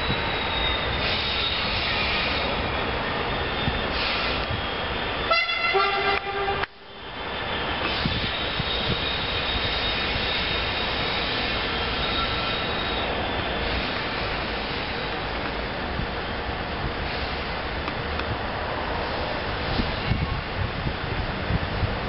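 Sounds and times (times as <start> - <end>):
train rumbling: 0.0 - 22.0
two-note train horn: 5.3 - 6.8.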